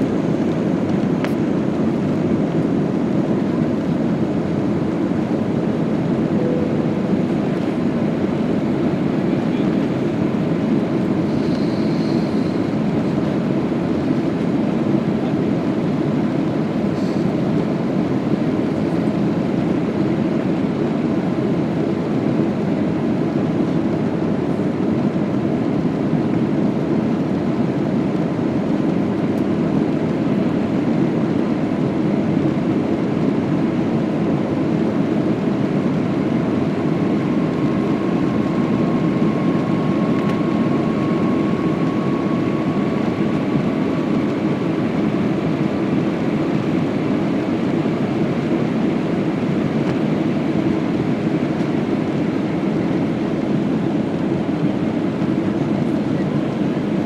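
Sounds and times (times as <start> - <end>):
faint high whine: 6.0 - 9.9, 11.2 - 12.8, 35.6 - 46.2.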